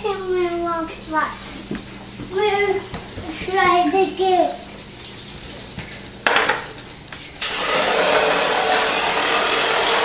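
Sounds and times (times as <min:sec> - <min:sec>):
toy car electric motor running: 0:07.4 - 0:10.0.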